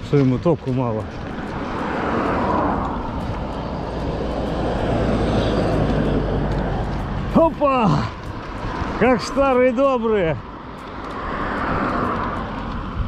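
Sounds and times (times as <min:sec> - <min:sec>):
low engine hum: 0:00.0 - 0:09.8
vehicle running noise: 0:00.0 - 0:13.0
wind rush: 0:00.0 - 0:13.0.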